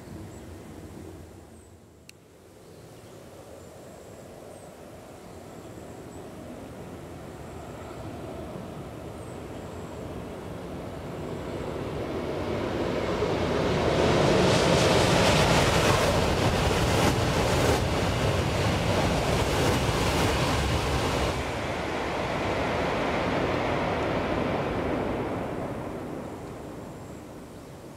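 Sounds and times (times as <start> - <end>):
high-speed train passing: 6.2 - 27.9.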